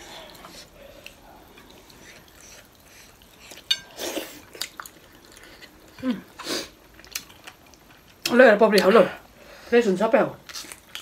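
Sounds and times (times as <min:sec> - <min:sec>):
chewing and smacking: 0:00.2 - 0:06.0, 0:06.8 - 0:09.0, 0:10.4 - 0:11.0.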